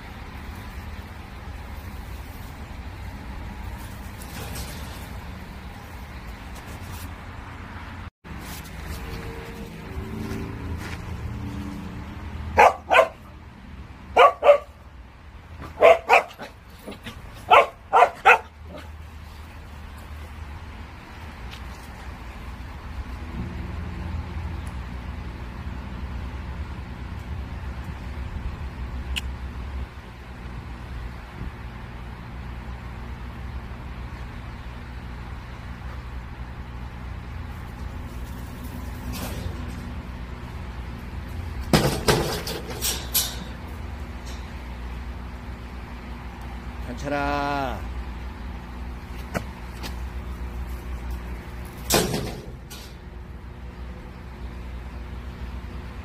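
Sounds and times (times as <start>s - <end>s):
engine humming: 0.0s - 56.0s
dogs barking: 12.5s - 13.3s, 14.1s - 14.8s, 15.6s - 19.0s.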